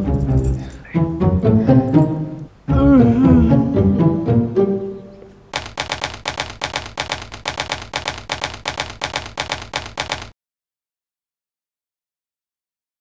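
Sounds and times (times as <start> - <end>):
typewriter key strikes: 5.6 - 10.3.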